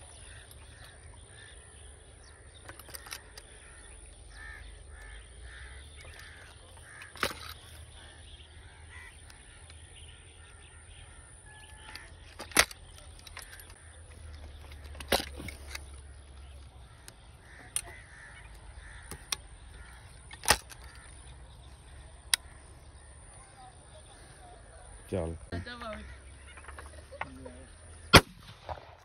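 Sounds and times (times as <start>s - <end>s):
shotgun action clicking open: 2.6s - 8.0s, 11.5s - 22.6s.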